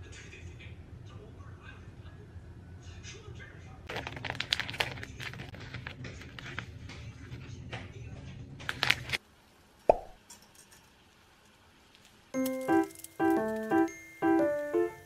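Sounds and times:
paper wrapping crinkling: 3.9s - 7.4s, 8.6s - 9.2s, 12.4s - 15.0s.

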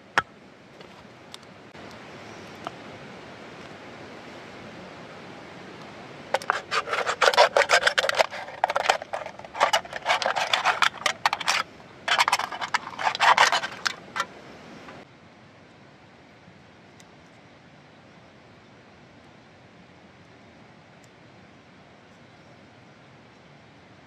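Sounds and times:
hand tool scraping wood: 6.3s - 14.3s.

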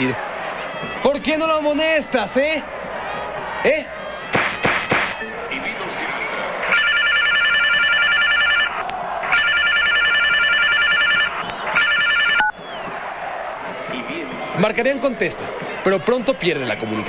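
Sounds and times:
phone ringtone trilling: 6.7s - 12.5s.

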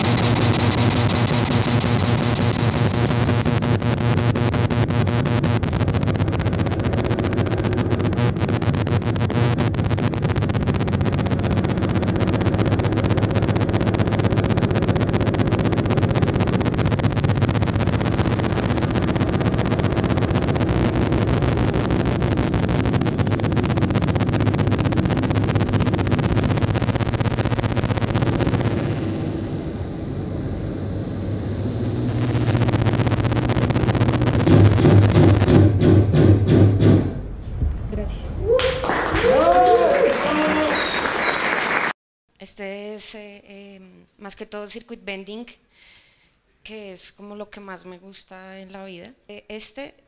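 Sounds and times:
harsh electronic noise: 0.0s - 37.4s
low drone: 0.0s - 38.6s.

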